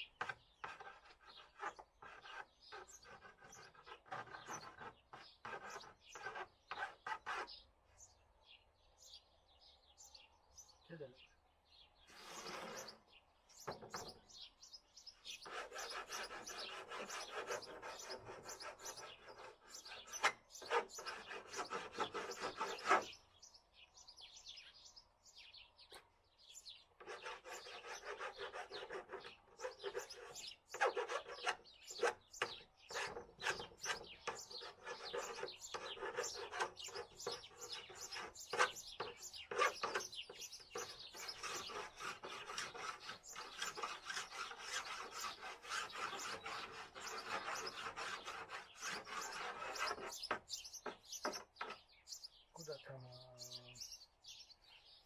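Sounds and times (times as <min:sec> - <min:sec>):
rasping hand filing: 0:00.2 - 0:07.6, 0:12.1 - 0:13.0, 0:15.3 - 0:23.2, 0:27.0 - 0:51.8.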